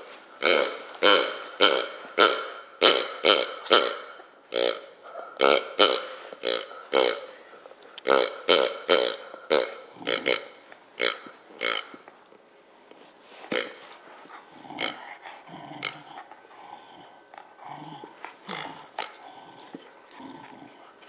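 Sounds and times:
dog chewing toy: 13.5 - 21.0.

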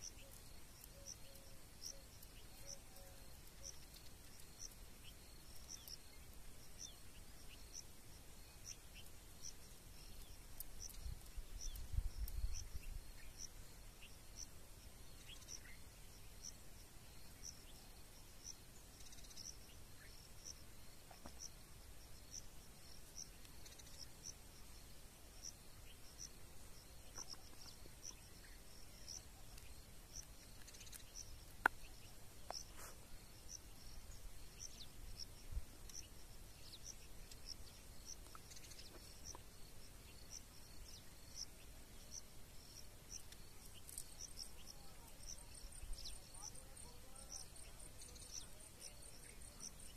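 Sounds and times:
cricket chirping: 0.0 - 49.9
wind rumble on microphone: 10.9 - 13.1.

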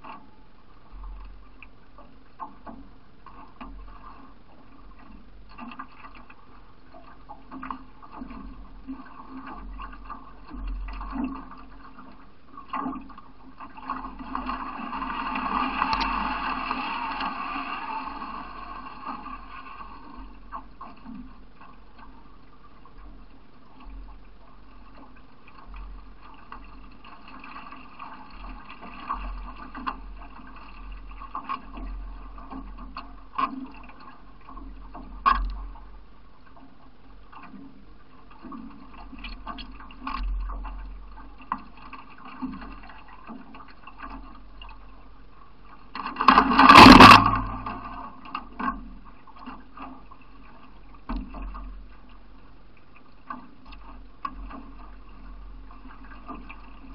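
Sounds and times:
water washing around canoe bow: 1.0 - 35.9, 37.3 - 52.4
loud rush of splashing water: 46.3 - 47.6.

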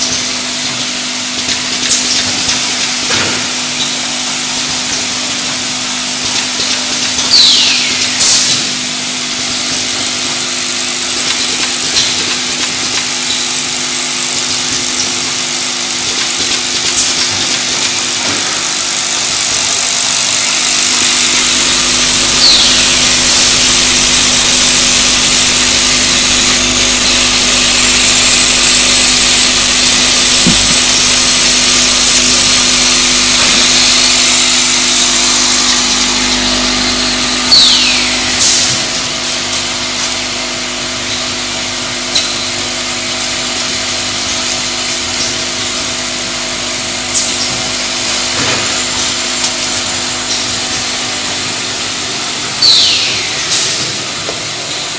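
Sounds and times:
machine hum: 0.0 - 54.9.

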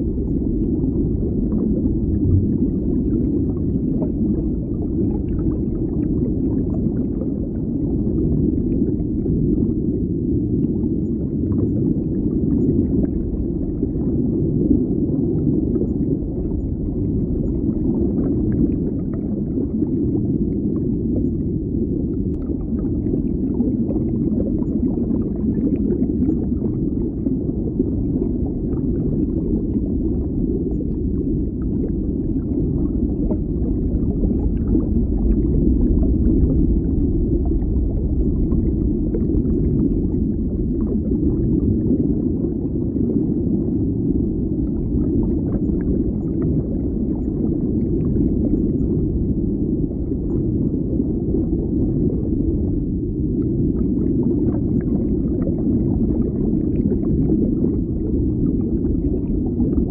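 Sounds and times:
faint bubbling: 0.0 - 59.9
underwater rumble: 0.0 - 59.9.

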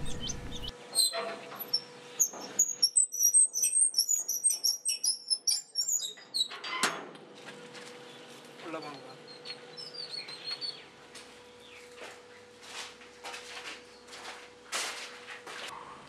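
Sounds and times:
small birds chirping: 0.0 - 6.5, 8.1 - 12.5.

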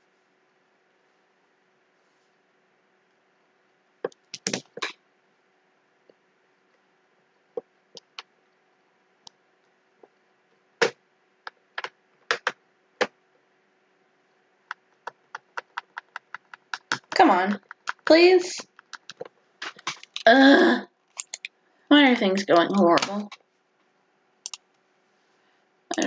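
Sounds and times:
faint steady hum: 0.0 - 26.0
keyboard keys clicking: 15.0 - 20.3, 21.2 - 21.5.

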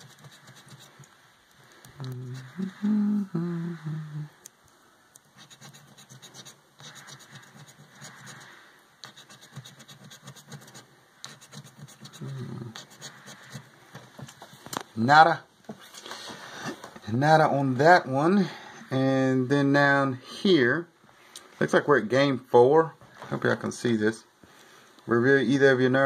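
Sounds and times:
scraper scratching lottery ticket: 0.0 - 1.1, 5.2 - 14.4
low voice hum: 2.0 - 4.5, 12.0 - 13.3.

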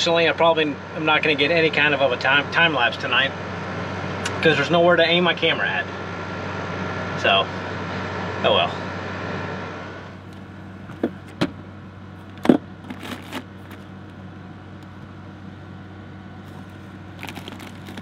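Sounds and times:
air conditioner humming: 0.0 - 18.0
plastic packaging crinkling: 12.3 - 13.9, 16.5 - 18.0.

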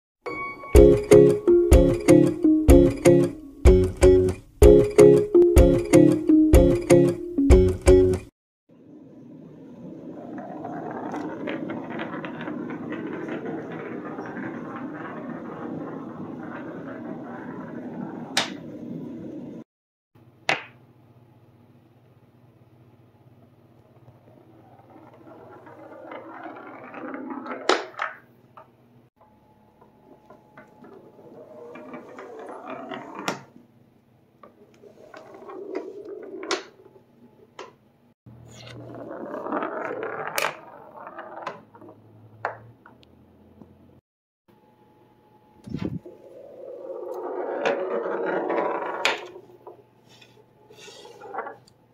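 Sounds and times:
marble rolling on wooden floor: 8.9 - 19.6, 23.4 - 28.7, 29.8 - 33.6, 34.4 - 37.8, 38.5 - 43.8, 45.6 - 51.8.

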